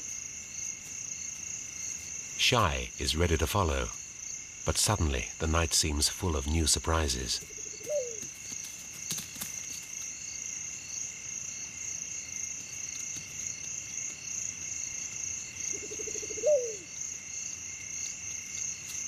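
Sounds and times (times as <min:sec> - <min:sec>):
crickets trilling: 0:00.0 - 0:19.0.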